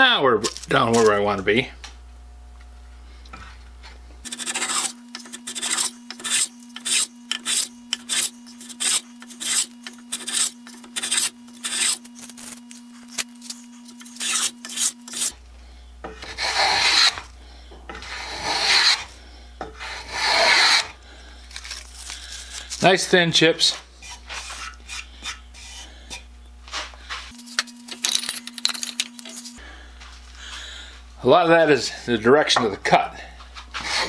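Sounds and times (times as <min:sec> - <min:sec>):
hand plane shaving wood: 0:04.3 - 0:12.0, 0:14.1 - 0:15.3, 0:16.2 - 0:17.2, 0:17.9 - 0:19.1, 0:19.8 - 0:20.9, 0:33.7 - 0:34.0.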